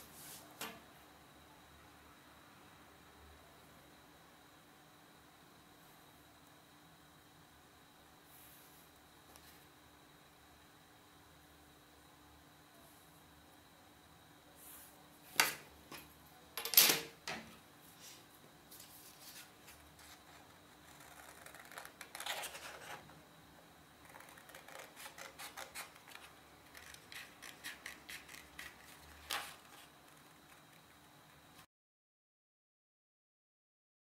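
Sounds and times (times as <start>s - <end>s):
paper rustling: 18.7s - 23.0s, 24.1s - 30.2s
scissors snipping paper: 24.1s - 29.8s.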